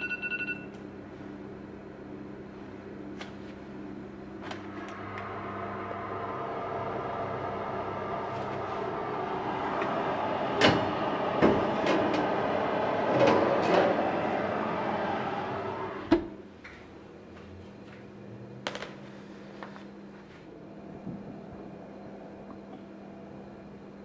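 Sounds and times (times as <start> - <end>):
machine hum: 0.7 - 24.0.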